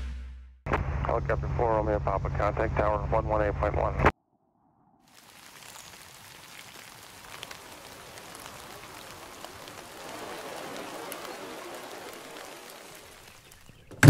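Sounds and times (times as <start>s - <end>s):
rain hiss: 5.1s - 14.0s
river rapids rushing: 7.6s - 13.4s.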